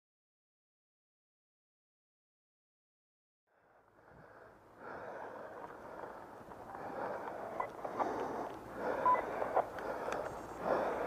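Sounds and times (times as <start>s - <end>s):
faint clicks: 5.3s - 11.0s.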